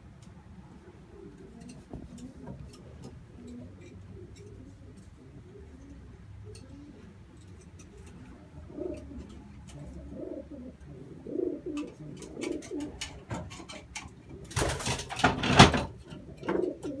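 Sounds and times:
pigeons cooing: 0:00.0 - 0:17.0
pigeon wingbeats: 0:11.3 - 0:17.0.

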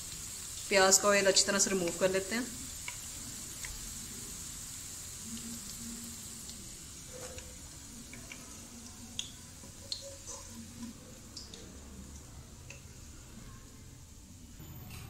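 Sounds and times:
hot oil sizzling: 0:00.0 - 0:14.9
small pops and ticks: 0:02.8 - 0:03.8, 0:08.1 - 0:08.4, 0:09.1 - 0:10.0.

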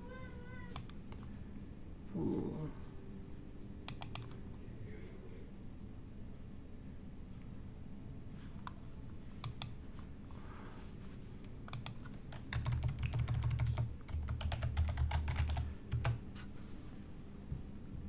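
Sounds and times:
keyboard typing: 0:03.9 - 0:04.4, 0:11.7 - 0:16.2.

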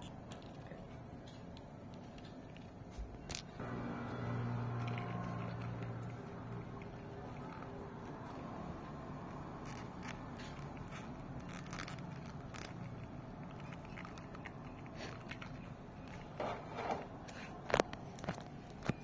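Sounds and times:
steady low hum: 0:00.0 - 0:19.0
plastic toy clicks and scrapes: 0:09.3 - 0:19.0.

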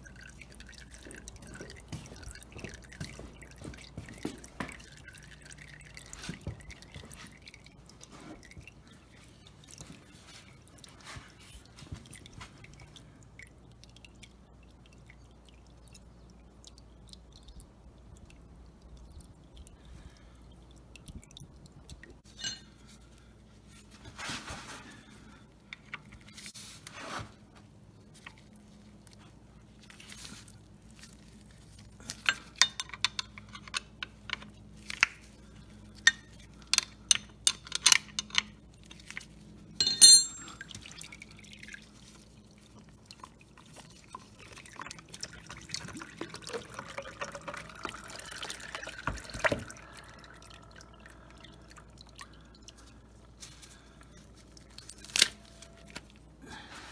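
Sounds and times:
oil dripping into a pan: 0:00.0 - 0:23.5, 0:28.1 - 0:56.2
metal clatter: 0:39.8 - 0:40.6
metallic tool clicks and clinks: 0:39.8 - 0:40.6.

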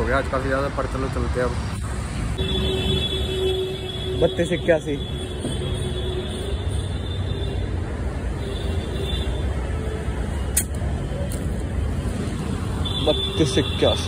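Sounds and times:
road traffic rumble: 0:00.0 - 0:14.0
sharp click: 0:10.5 - 0:11.5.

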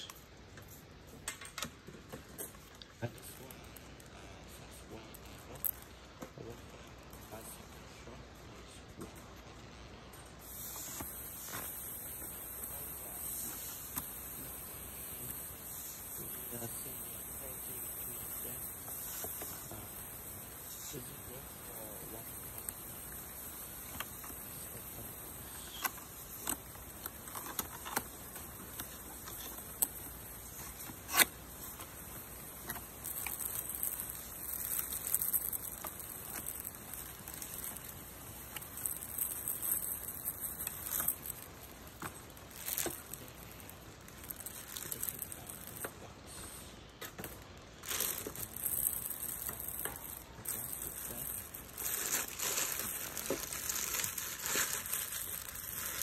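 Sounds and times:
steady high hiss: 0:00.0 - 0:56.0
plastic bag rustling: 0:23.6 - 0:46.1, 0:47.2 - 0:56.0.

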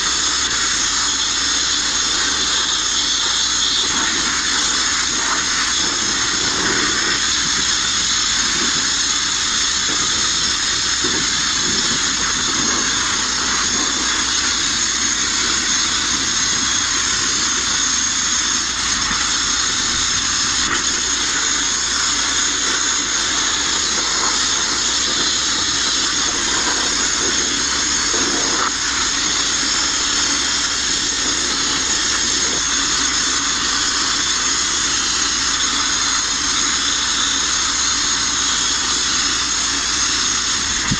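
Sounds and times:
grit blasting on sheet steel: 0:00.0 - 0:40.9.

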